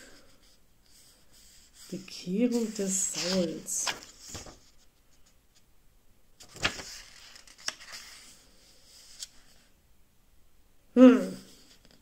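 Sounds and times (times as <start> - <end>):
book pages rustling: 0.4 - 5.6, 6.4 - 9.7.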